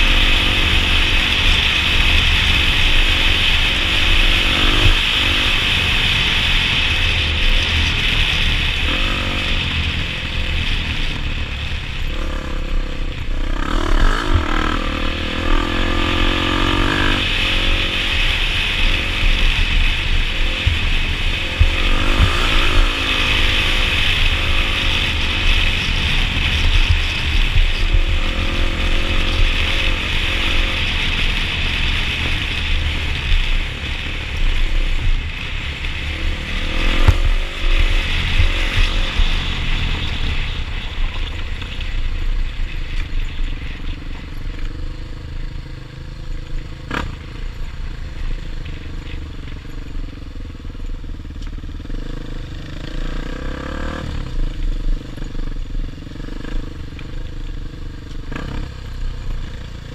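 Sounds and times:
dirt bike engine revving: 0.0s - 41.2s, 51.8s - 57.3s.

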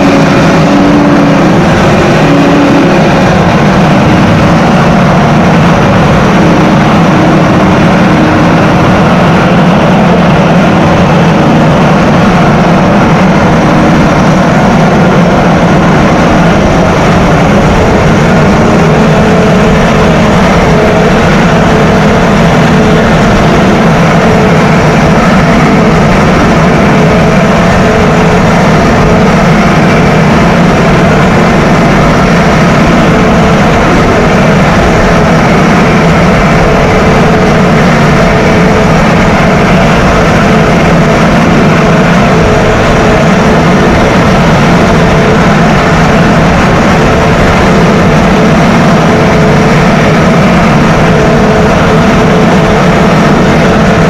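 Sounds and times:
tractor engine running under load: 0.0s - 54.0s.

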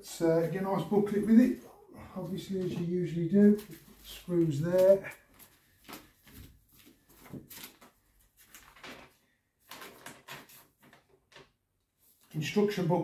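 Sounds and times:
paper rustling and tapping: 2.3s - 11.6s.

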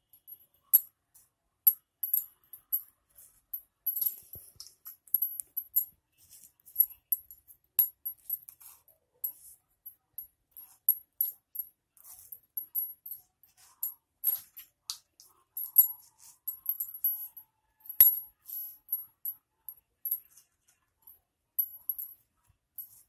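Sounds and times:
bangles clinking: 0.0s - 1.0s, 1.7s - 23.0s.

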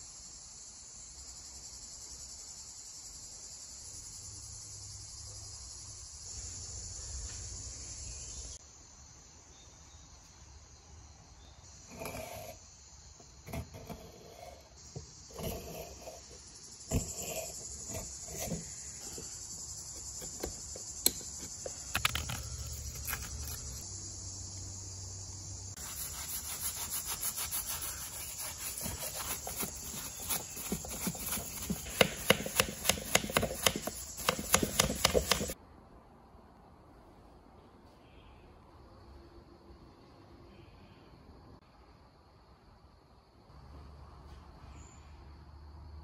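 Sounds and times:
paintbrush scrubbing metal: 25.8s - 35.6s
screwdriver scraping metal: 28.5s - 35.6s.

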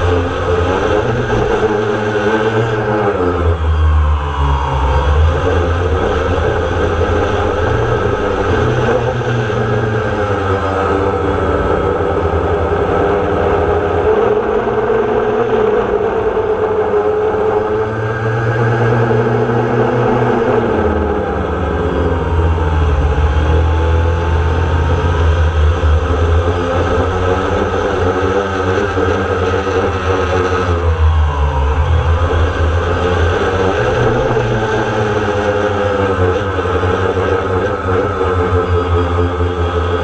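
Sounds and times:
drone propellers whining: 0.0s - 40.0s
low rumble: 30.2s - 35.4s.

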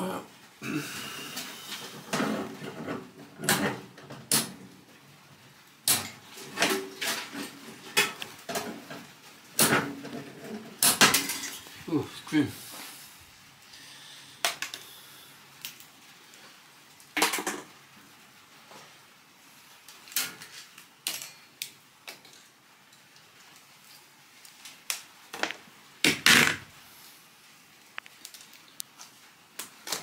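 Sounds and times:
parts clattering: 5.9s - 11.9s.

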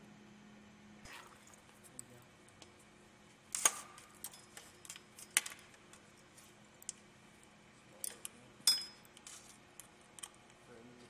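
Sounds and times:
metal tools clinking on fittings: 8.0s - 9.0s.

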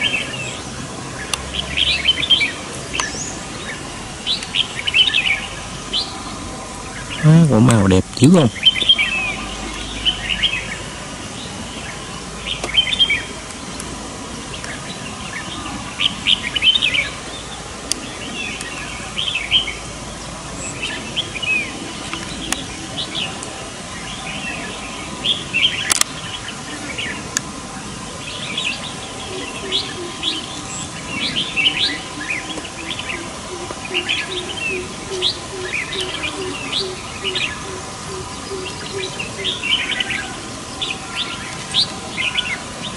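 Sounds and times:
birds chattering calls: 0.0s - 42.9s.

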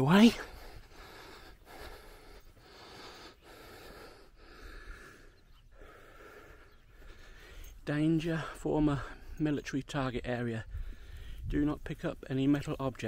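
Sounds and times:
man breathing faintly: 0.2s - 9.6s, 10.6s - 11.6s.

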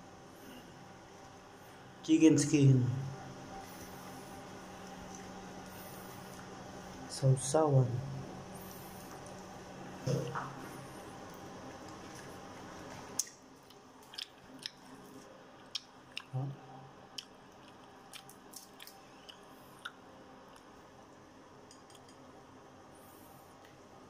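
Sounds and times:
fried chicken skin crunching: 11.7s - 16.3s, 17.2s - 20.0s.

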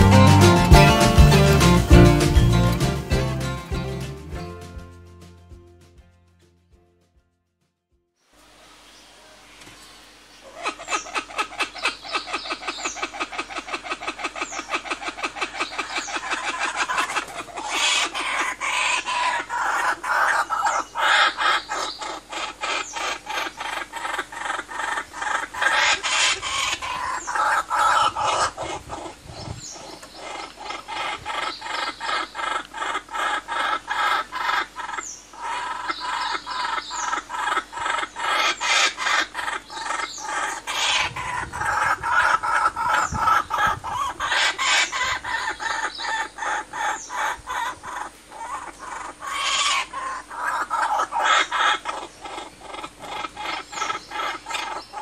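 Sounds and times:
kookaburras laughing chorus: 10.6s - 29.2s.

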